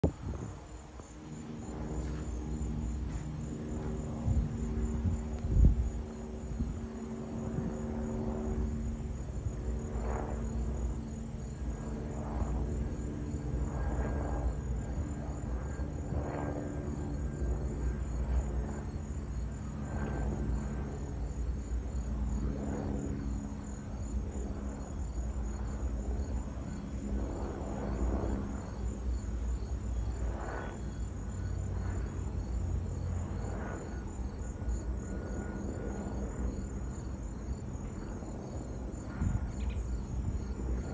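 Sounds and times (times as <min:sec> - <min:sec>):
distant helicopter flying over: 0:00.0 - 0:40.9
insects chirping: 0:00.0 - 0:40.9.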